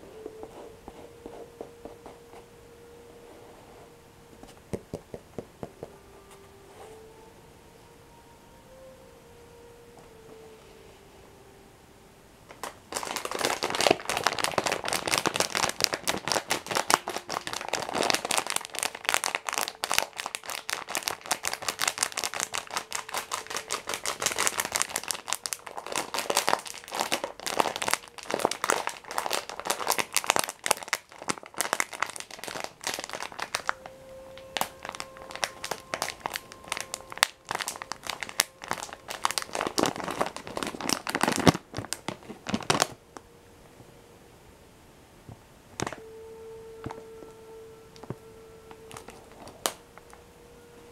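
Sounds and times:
plastic packet crinkling: 0:12.5 - 0:43.0, 0:48.8 - 0:50.2.

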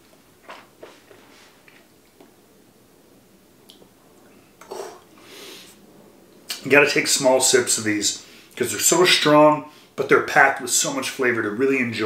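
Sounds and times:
person breathing: 0:05.2 - 0:05.8, 0:08.2 - 0:08.6.

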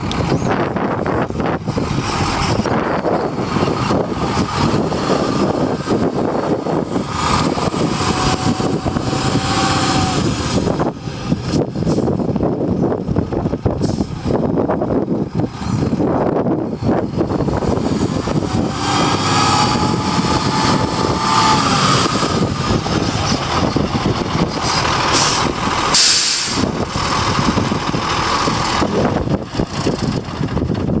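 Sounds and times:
diesel truck engine: 0:00.0 - 0:31.0
air brake hiss: 0:25.2 - 0:26.6.

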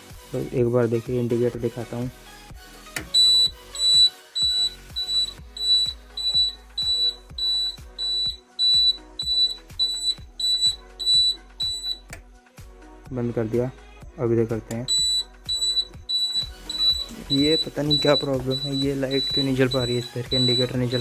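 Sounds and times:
flasher buzzer beeping: 0:03.1 - 0:12.1, 0:14.8 - 0:21.0.

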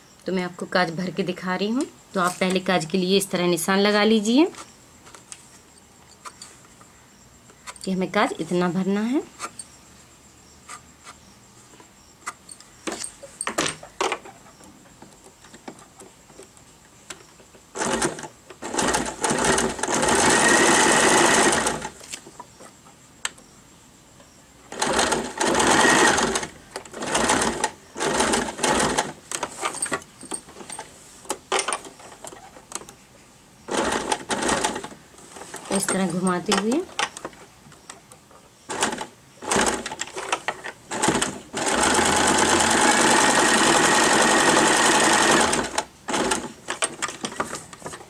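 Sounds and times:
sewing machine stitching: 0:17.8 - 0:21.9, 0:24.8 - 0:29.1, 0:33.7 - 0:34.9, 0:38.7 - 0:46.6.

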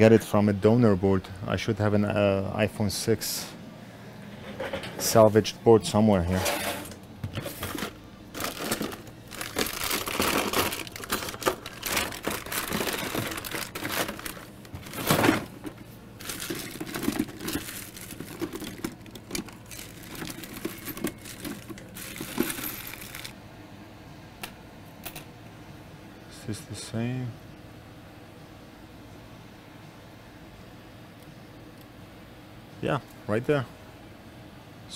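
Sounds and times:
rummaging through parts: 0:06.3 - 0:23.3
crinkling and rustling: 0:06.4 - 0:23.3.

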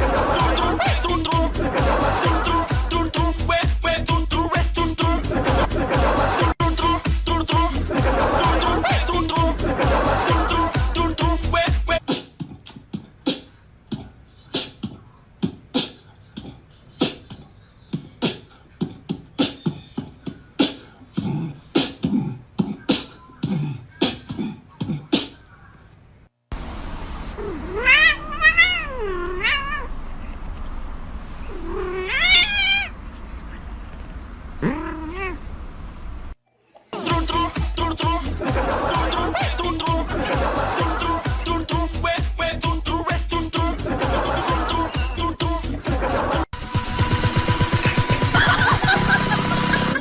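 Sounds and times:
cat meowing in yowls: 0:27.5 - 0:29.9, 0:31.6 - 0:32.9.

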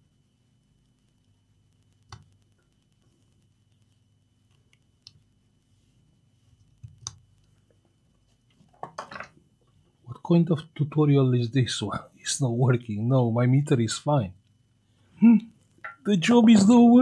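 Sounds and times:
steady low hum: 0:00.0 - 0:08.7, 0:09.3 - 0:17.0.

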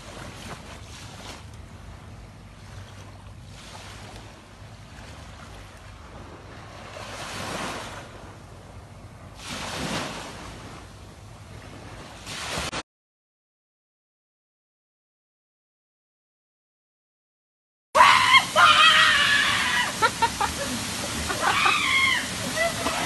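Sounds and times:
small waves washing onto beach: 0:00.0 - 0:08.5, 0:09.4 - 0:12.8, 0:18.0 - 0:23.0.

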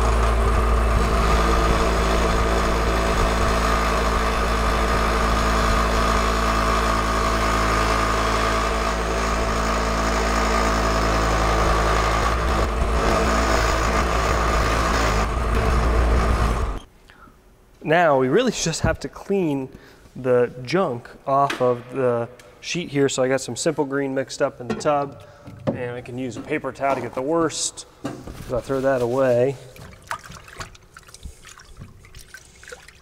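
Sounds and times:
drill press motor hum: 0:00.0 - 0:16.9.

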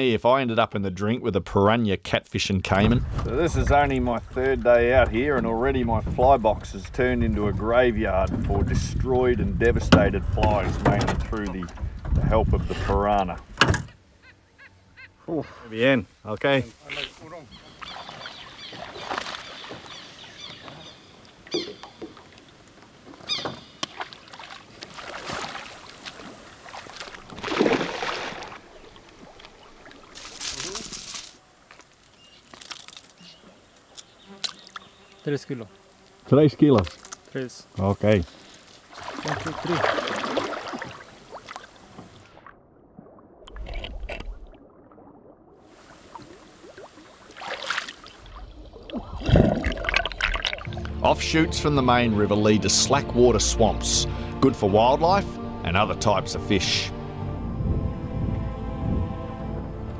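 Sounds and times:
water splashing and sloshing: 0:02.7 - 0:14.1, 0:16.4 - 0:34.8, 0:38.0 - 0:52.3
loud water splash: 0:24.0 - 0:29.0, 0:38.9 - 0:41.7, 0:42.3 - 0:51.0.

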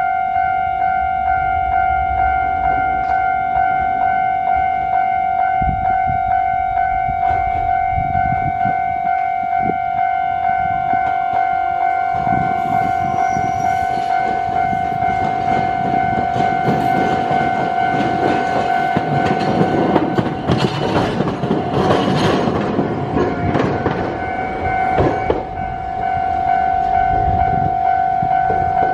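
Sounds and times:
steady high-pitched tone: 0:00.0 - 0:20.5, 0:23.1 - 0:28.9
tram rolling on rails: 0:00.0 - 0:28.9
wheels clacking over crossing rails: 0:12.1 - 0:27.4.

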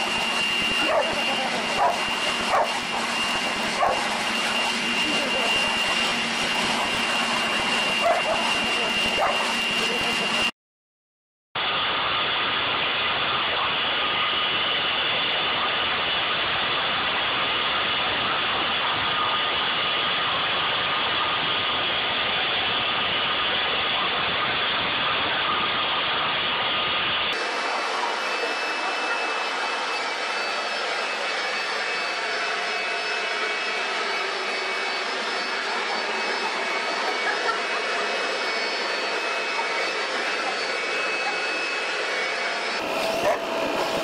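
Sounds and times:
leaf blowers running: 0:00.0 - 0:10.5, 0:27.3 - 0:44.0.

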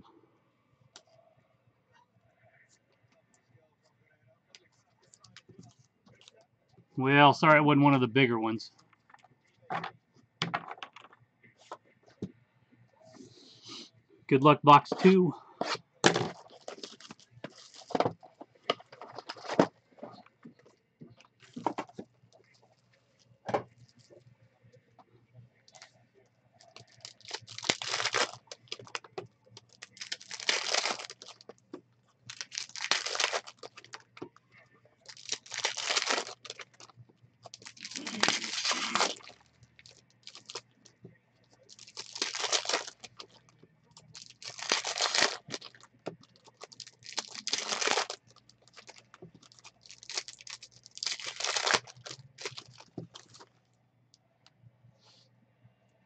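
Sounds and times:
foil packs tearing open: 0:16.1 - 0:18.1, 0:26.7 - 0:31.4, 0:32.3 - 0:34.1, 0:35.0 - 0:36.9, 0:37.5 - 0:40.6, 0:41.7 - 0:43.4, 0:44.0 - 0:53.4.

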